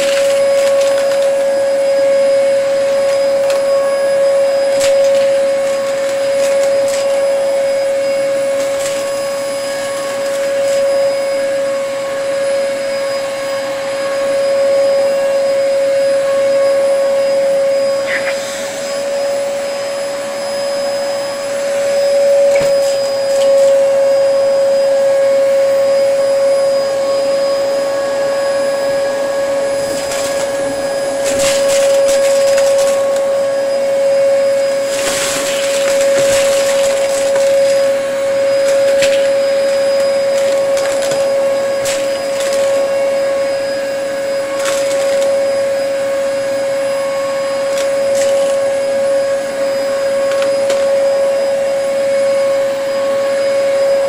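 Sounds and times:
debris crackling in vacuum: 0.0 - 11.7, 29.7 - 46.3, 47.4 - 51.1
vacuum cleaner motor whine: 0.0 - 54.0.

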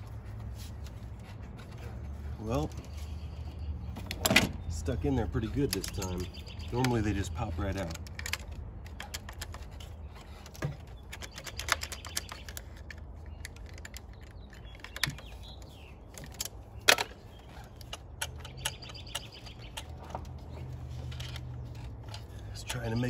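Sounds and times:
clicks and taps of tools: 5.6 - 23.0.

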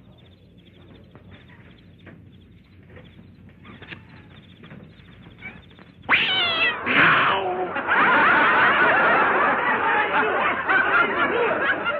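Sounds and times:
cat yowling: 3.6 - 4.4, 5.4 - 7.7
cat hissing: 6.1 - 7.6
crowd laughing and chattering: 7.2 - 11.9.

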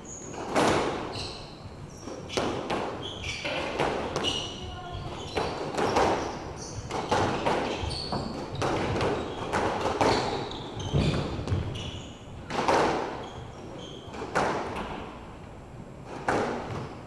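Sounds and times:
sneaker squeaks on floor: 0.0 - 12.3, 13.1 - 14.4.

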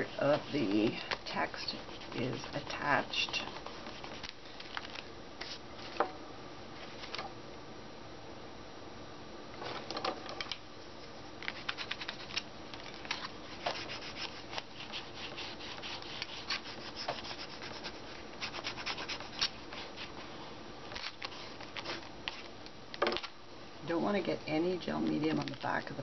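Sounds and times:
fingers rubbing paper: 0.0 - 4.9, 11.5 - 12.4, 13.6 - 20.1.

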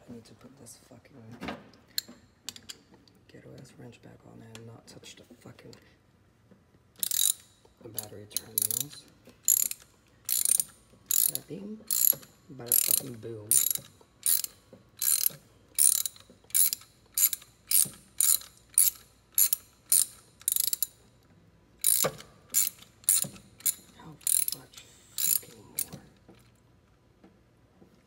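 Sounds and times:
ratchet wrench clicking: 7.0 - 21.0, 21.8 - 26.0.

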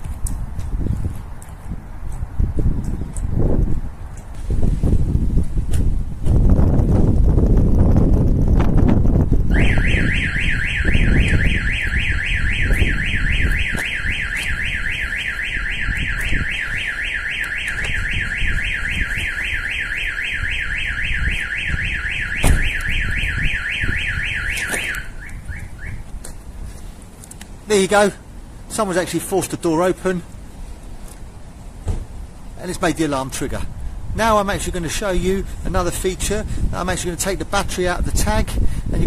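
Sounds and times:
alarm chirps: 9.5 - 26.0
van alarm siren: 9.5 - 26.1.

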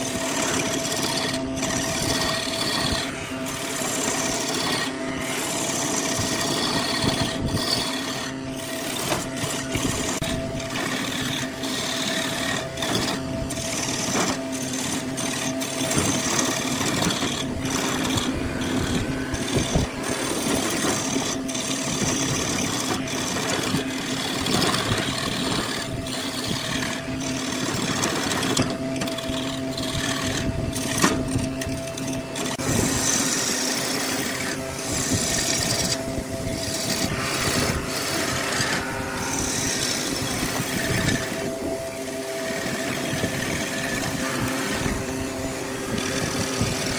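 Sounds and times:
chisel scraping spinning wood: 0.0 - 46.9
wood lathe humming: 0.0 - 46.9.

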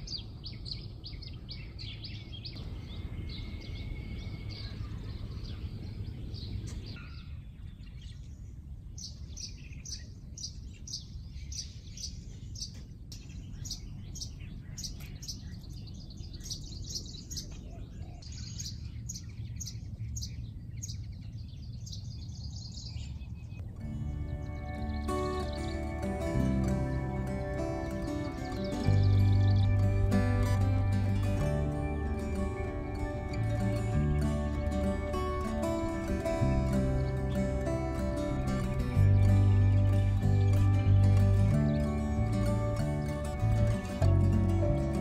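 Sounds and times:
small birds chirping: 0.0 - 45.0
low background rumble: 18.8 - 45.0.

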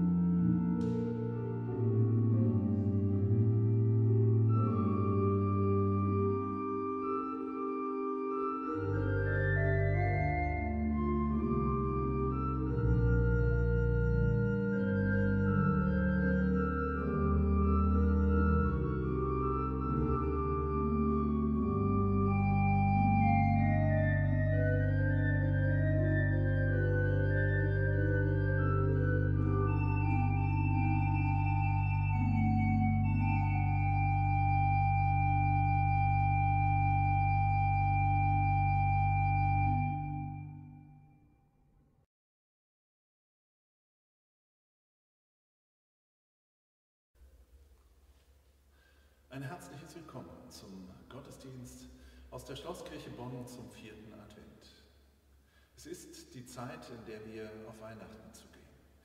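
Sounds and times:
church organ chords: 0.0 - 41.3.

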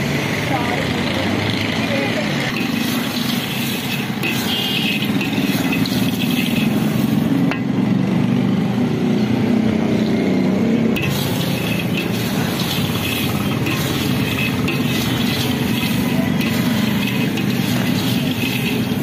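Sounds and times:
peanuts and sand rattling in wok: 2.5 - 7.5, 11.0 - 19.0.

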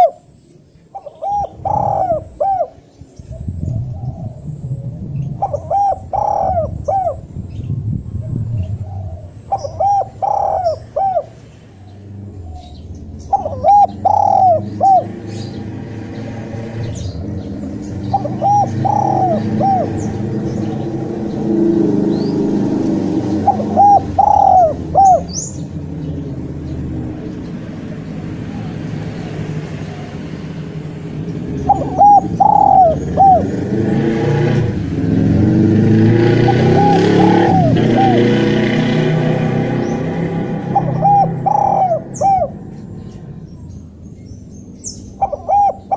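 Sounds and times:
dove cooing: 0.0 - 0.3, 0.9 - 7.4, 8.1 - 11.4, 12.2 - 15.8, 16.9 - 26.0, 31.4 - 43.4, 45.2 - 45.9
low engine rumble: 0.0 - 45.9.

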